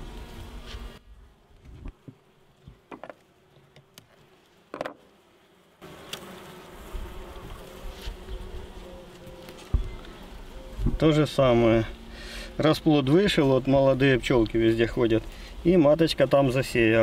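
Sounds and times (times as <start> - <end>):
honeybees buzzing: 0.0 - 17.0.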